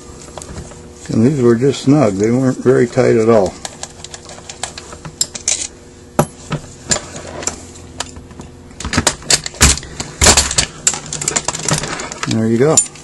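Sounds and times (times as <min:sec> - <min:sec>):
metal parts clicking and knocking: 0:08.8 - 0:13.0.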